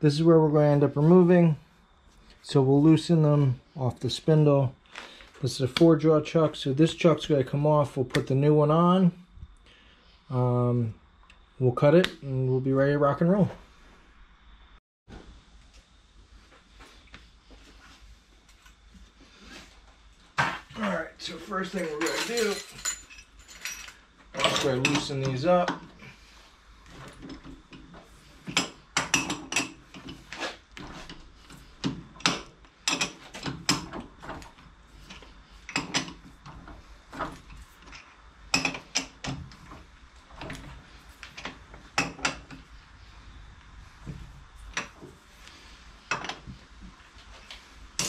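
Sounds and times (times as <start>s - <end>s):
metallic clinks and knocks: 21.8s - 25.2s.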